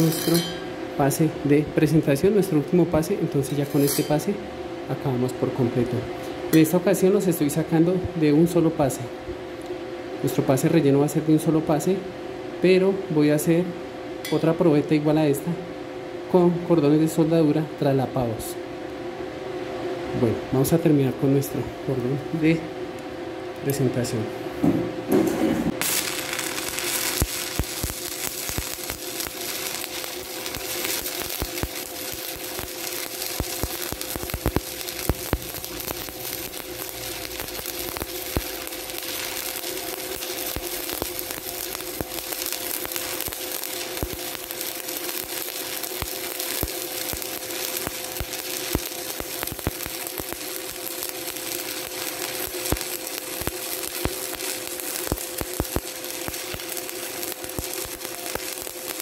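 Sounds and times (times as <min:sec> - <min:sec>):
welding arc crackling: 0:00.0 - 0:09.0, 0:25.6 - 0:59.0
steady hum: 0:00.0 - 0:59.0
welding arc sharp pops: 0:25.1 - 0:59.0.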